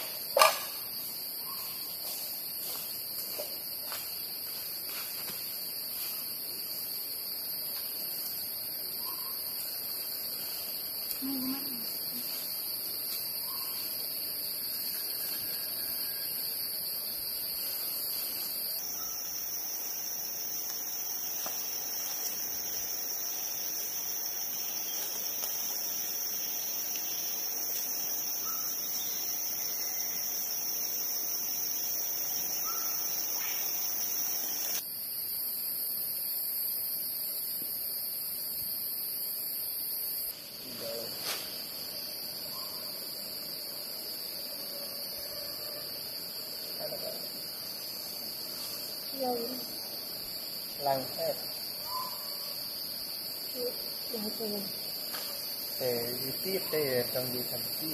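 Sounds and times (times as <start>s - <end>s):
insects chirring chorus: 0.0s - 57.9s
faint bird chirps: 1.4s - 1.8s, 9.0s - 9.5s, 13.4s - 13.9s, 32.6s - 33.7s, 51.8s - 52.5s.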